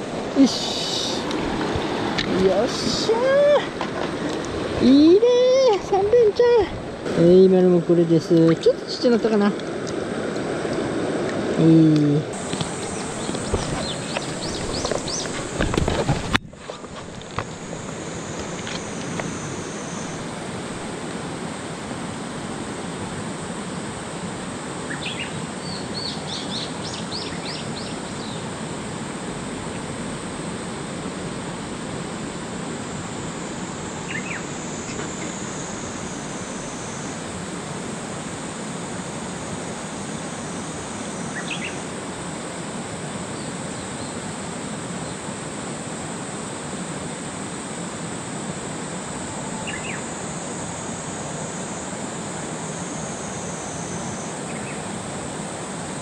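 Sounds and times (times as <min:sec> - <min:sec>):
river current rushing: 0:00.0 - 0:56.0
birds chirping: 0:12.4 - 0:15.6, 0:24.9 - 0:28.5, 0:34.1 - 0:34.5, 0:41.3 - 0:41.8, 0:49.6 - 0:50.0.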